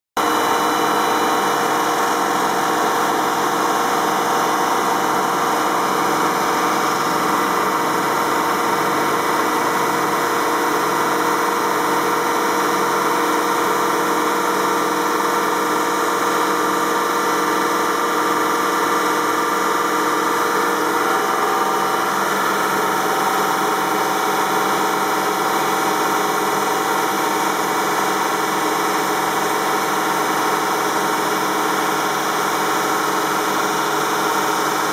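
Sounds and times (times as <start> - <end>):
stone saw cutting: 0.2 - 11.2.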